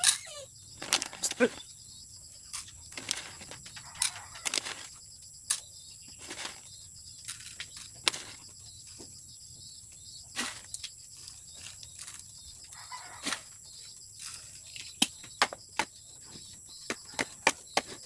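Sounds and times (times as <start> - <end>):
bowls knocking and clattering: 0.0 - 1.7, 2.6 - 4.9.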